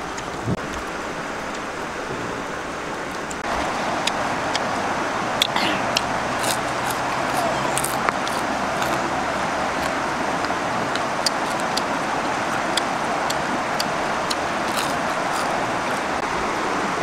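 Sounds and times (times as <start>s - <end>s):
river flowing over stones: 0.0s - 17.0s
crunchy chewing: 3.4s - 16.2s.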